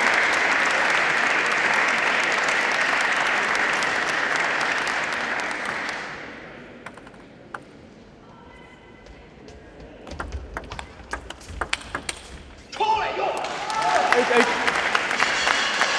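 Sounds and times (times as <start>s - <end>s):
audience applauding: 0.0s - 6.4s, 13.3s - 15.9s.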